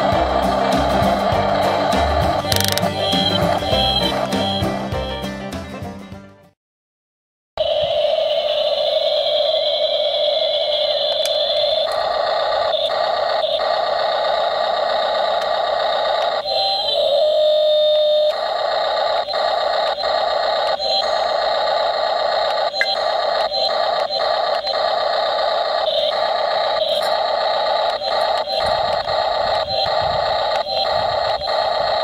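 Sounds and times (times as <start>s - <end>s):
motor clicks: 2.5s - 3.0s
toy excavator electric whine: 2.5s - 4.6s, 9.2s - 32.0s.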